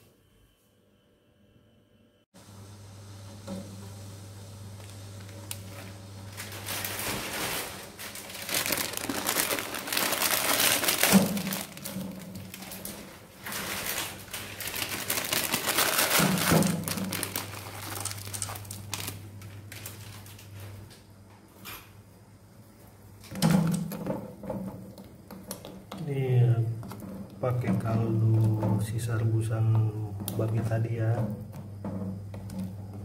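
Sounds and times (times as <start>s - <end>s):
plastic packet crinkling and tearing: 4.8s - 20.6s.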